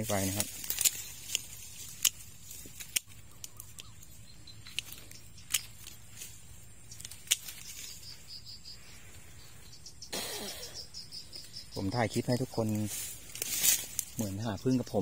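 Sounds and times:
twigs snapping underfoot: 0.0 - 8.2, 12.6 - 14.3.

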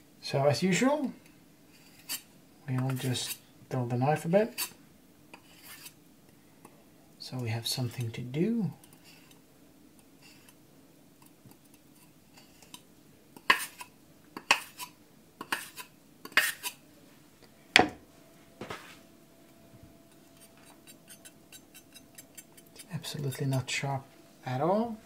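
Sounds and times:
knife scraping on plate edge: 1.7 - 2.3, 4.5 - 6.0, 8.8 - 9.4, 10.2 - 10.6, 11.7 - 12.8, 13.4 - 16.8, 20.1 - 23.8.

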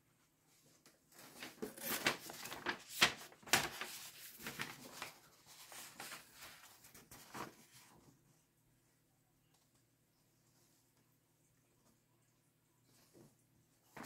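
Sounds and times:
paper sheet rustling and crinkling: 0.5 - 8.2, 13.0 - 14.0.

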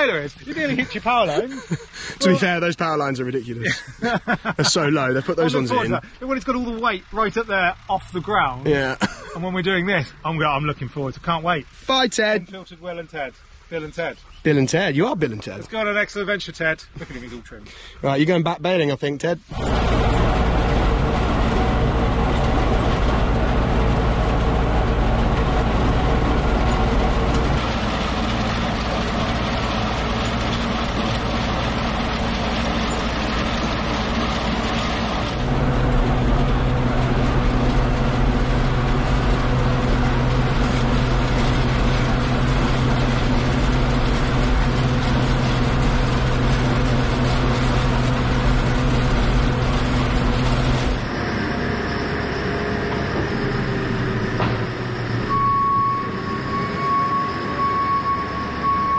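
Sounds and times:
tractor engine running: 0.0 - 18.4, 19.4 - 58.9.

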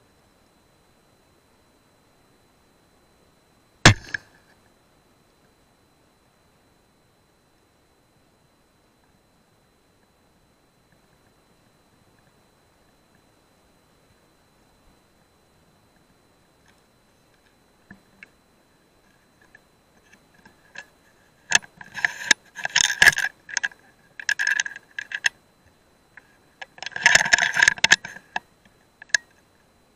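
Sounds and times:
handling clicks and rattles: 21.5 - 25.4, 26.2 - 28.4.

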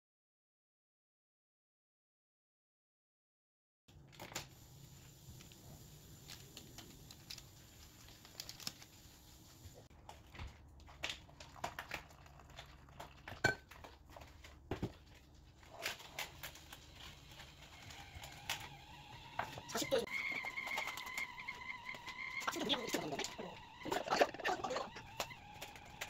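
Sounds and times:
rustling: 4.1 - 12.4
kitchenware clicks and clinks: 13.1 - 13.9.

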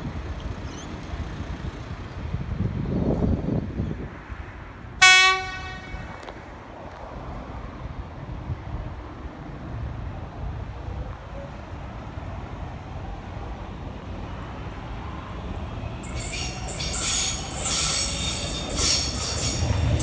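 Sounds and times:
wind noise on microphone: 0.0 - 14.0
electric train rumbling: 0.0 - 20.0
train horn blast: 5.0 - 6.3.

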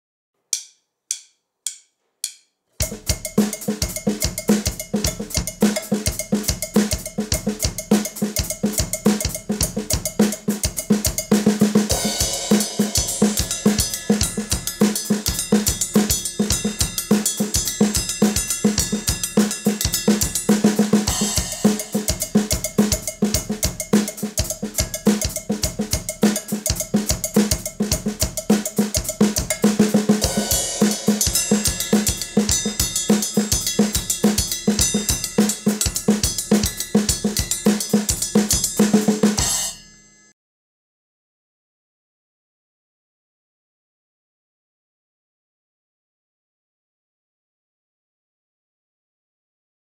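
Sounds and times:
drum kit funk groove: 2.8 - 39.8
cymbal wash: 30.2 - 38.8.

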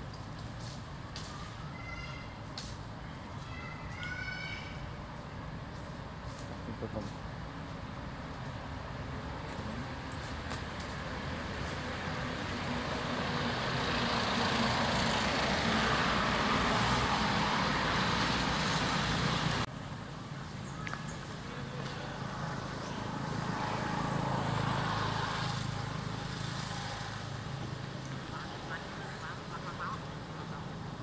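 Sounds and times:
road traffic rushing: 0.0 - 31.0.

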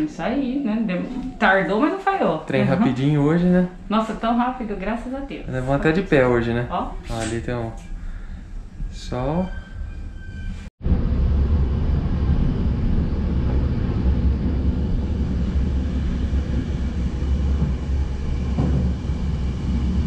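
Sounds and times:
train rumbling on track: 7.7 - 20.0.

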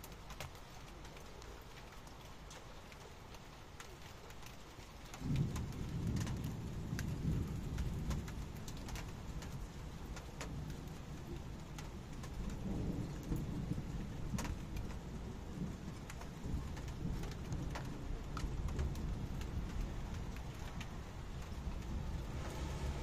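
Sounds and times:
heavy rain: 0.0 - 23.0
raindrops ticking on surface: 0.0 - 23.0
rumble of thunder: 5.2 - 23.0.

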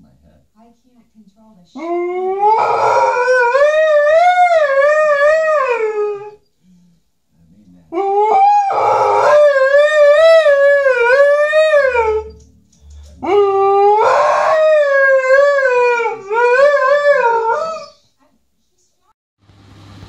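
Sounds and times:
dog howling: 1.8 - 6.4, 7.9 - 12.4, 13.2 - 18.0.

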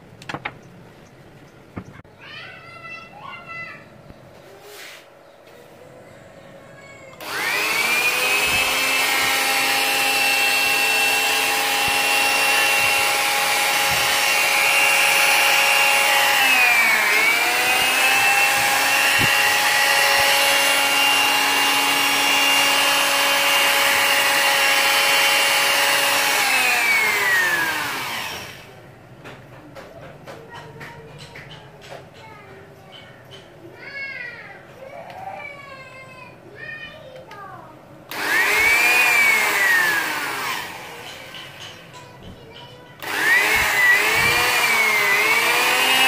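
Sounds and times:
electric drill motor whining: 7.1 - 28.8, 38.1 - 41.8, 43.0 - 46.0.

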